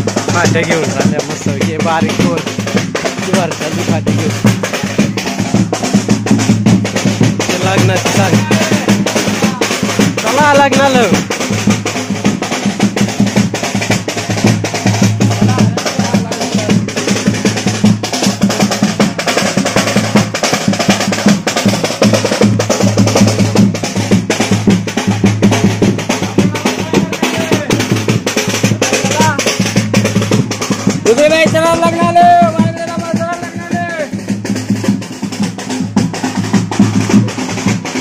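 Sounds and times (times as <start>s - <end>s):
drums playing fast beat: 0.0s - 38.0s
person calling out: 7.7s - 11.2s, 26.3s - 27.8s, 28.8s - 29.5s, 31.1s - 34.1s.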